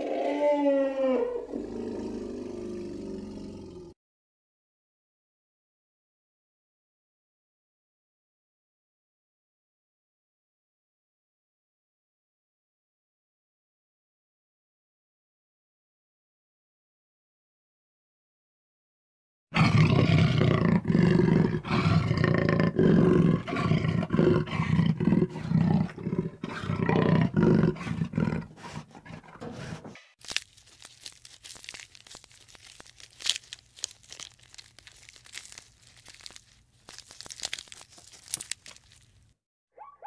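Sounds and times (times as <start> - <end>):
tiger roaring and growling: 0.0 - 3.9, 19.6 - 30.0
leaves crackling and tearing: 30.2 - 39.4.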